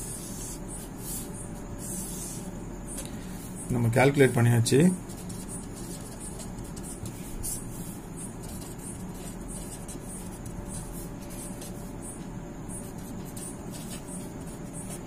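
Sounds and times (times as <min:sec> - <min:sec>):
pen scratching on paper: 0:00.0 - 0:02.5, 0:05.1 - 0:15.0
low steady hum: 0:00.0 - 0:15.0.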